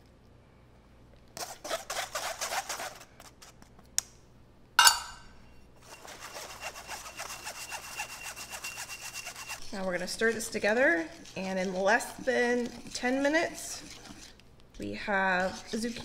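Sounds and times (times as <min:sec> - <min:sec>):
spoon rubbing flour through sieve: 0:01.4 - 0:03.4, 0:05.8 - 0:16.0
metallic clink: 0:04.8 - 0:05.3
spoon scraping in glass jar: 0:05.8 - 0:14.4.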